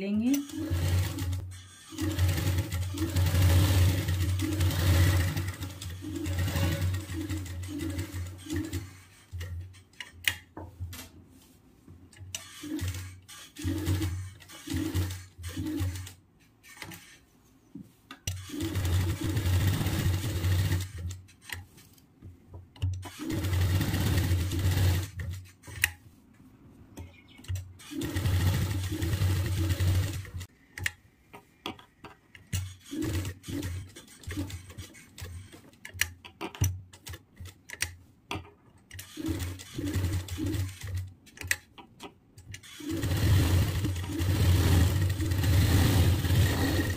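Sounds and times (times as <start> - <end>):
sewing machine stitching: 0.3 - 9.6, 12.4 - 17.2, 18.3 - 21.2, 23.0 - 25.5, 27.8 - 30.5, 32.6 - 35.7, 39.0 - 41.1, 42.6 - 46.9.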